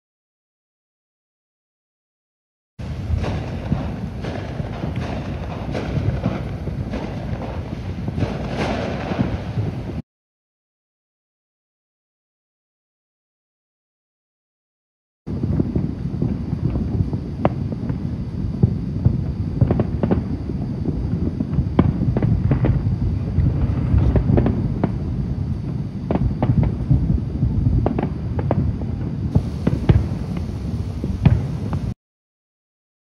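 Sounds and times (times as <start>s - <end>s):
distant fireworks rumble: 2.8s - 10.0s, 15.3s - 32.0s
fireworks cracking and popping: 2.8s - 10.0s, 15.3s - 32.0s.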